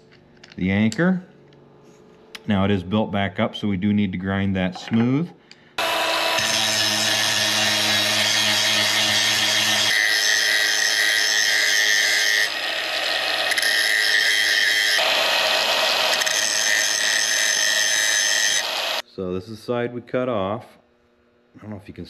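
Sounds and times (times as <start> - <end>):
angle grinder grinding metal: 5.8 - 19.0.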